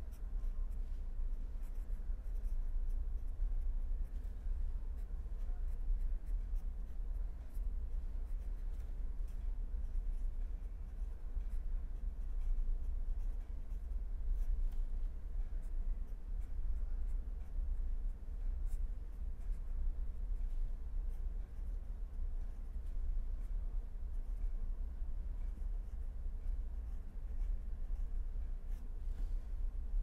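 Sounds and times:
marker pen scratching on paper: 0.0s - 17.8s, 18.4s - 24.7s, 25.3s - 30.0s
steady low hum: 0.0s - 30.0s.

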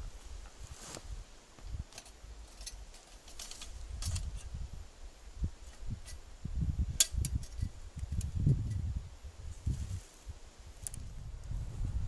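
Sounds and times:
rustling: 0.0s - 4.6s
gear clinking and rattling: 1.9s - 4.5s.

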